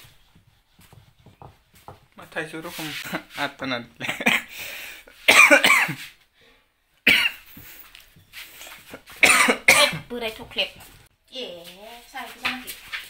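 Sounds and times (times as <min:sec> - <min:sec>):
person coughing: 0:04.1 - 0:04.5, 0:05.3 - 0:06.0, 0:07.1 - 0:07.4, 0:09.2 - 0:10.1.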